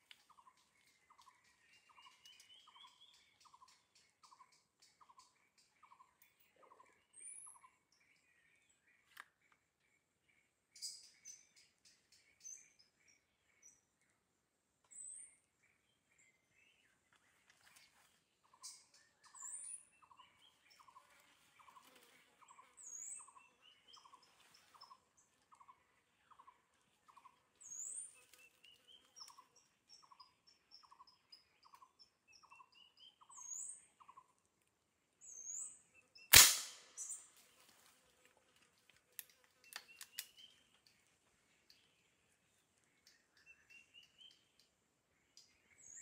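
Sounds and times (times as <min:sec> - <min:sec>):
forest birds calling: 0:00.0 - 0:46.0
gunshot: 0:36.3 - 0:37.2
small clicks: 0:38.6 - 0:41.8.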